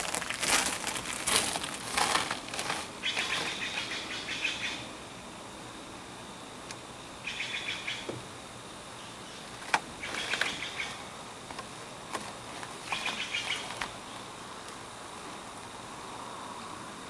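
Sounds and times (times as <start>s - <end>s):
bird chirping: 3.0s - 4.9s, 7.2s - 8.1s, 9.0s - 11.0s, 12.9s - 14.2s.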